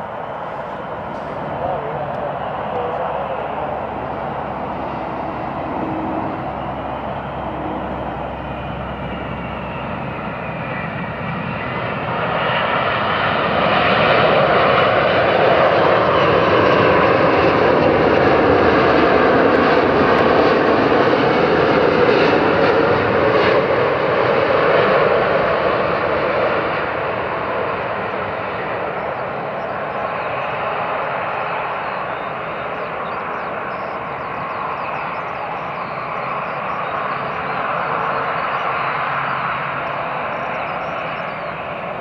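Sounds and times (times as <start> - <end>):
jet airliner engine roar: 0.0 - 42.0
jet engine whine: 0.0 - 42.0.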